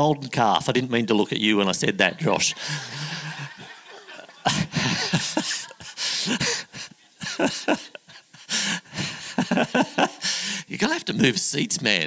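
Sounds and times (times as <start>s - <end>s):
people laughing: 2.0s - 10.5s.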